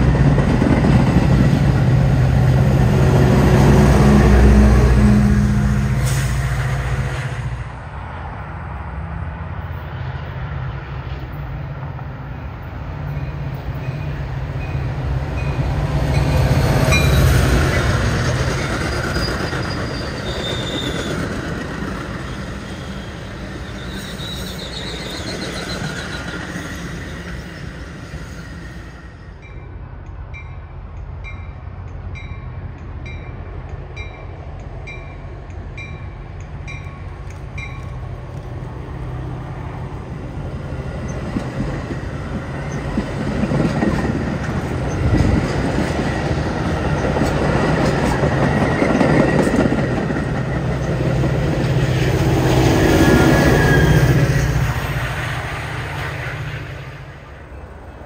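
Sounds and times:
train cars rolling clatter: 0.0 - 4.8, 11.0 - 29.0, 29.8 - 57.7
diesel locomotive engine rumble: 0.0 - 58.0
crossing bell ringing: 13.1 - 17.9, 29.4 - 38.1
train wheel squeal: 13.1 - 29.7, 41.0 - 57.5.

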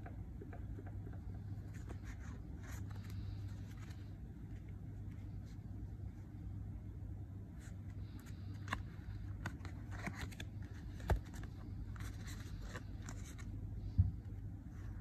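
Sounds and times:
low steady hum: 0.0 - 15.0
playing cards clicking and rustling: 8.0 - 13.6.

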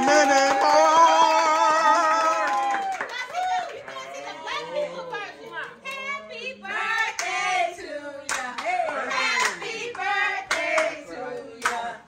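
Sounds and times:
people calling out and laughing: 3.1 - 6.7
hand claps: 8.3 - 9.7, 11.6 - 11.9.

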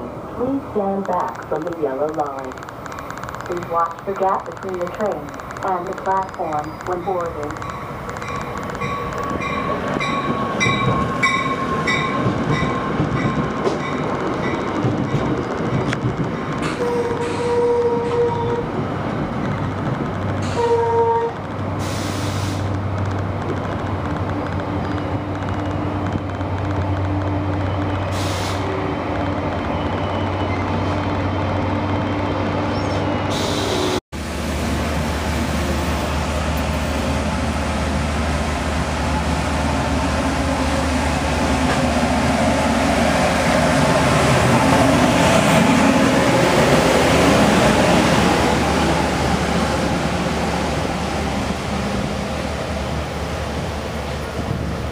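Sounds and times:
train cars rumbling past: 0.0 - 54.9.

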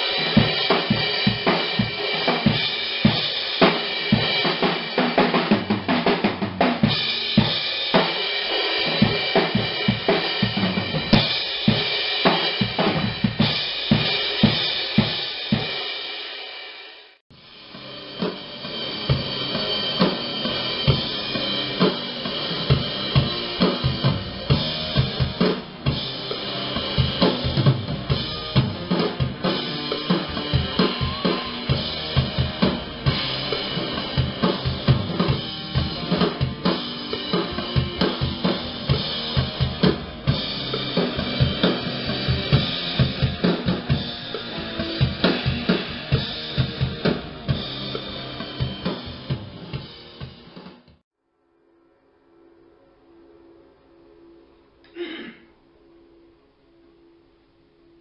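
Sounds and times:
cymbals washing: 17.4 - 50.6.

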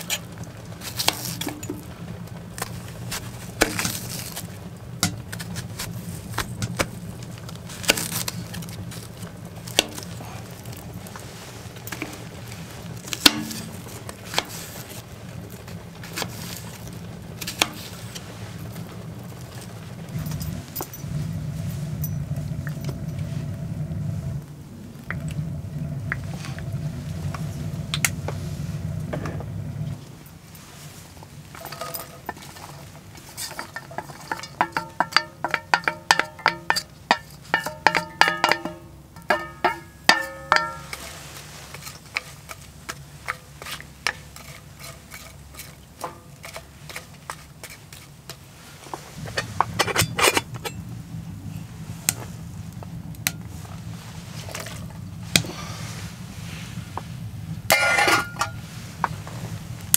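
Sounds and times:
wooden spatula stirring onions in skillet: 0.0 - 59.9
metal cookware clinking: 7.6 - 15.0, 17.4 - 18.2, 31.6 - 48.4, 49.2 - 50.9, 57.7 - 59.2
knocks and clinks: 31.6 - 32.8, 33.4 - 41.2, 57.7 - 59.2.

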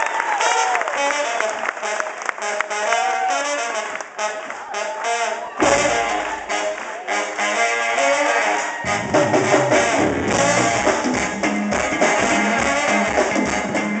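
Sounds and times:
live brass band music: 0.2 - 14.0
bass and drums: 5.6 - 6.8, 8.8 - 14.0.

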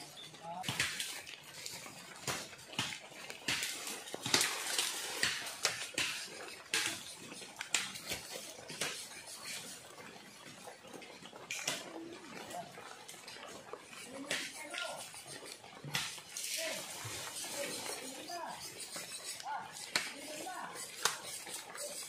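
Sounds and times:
rustling leaves and brush: 0.0 - 6.0.

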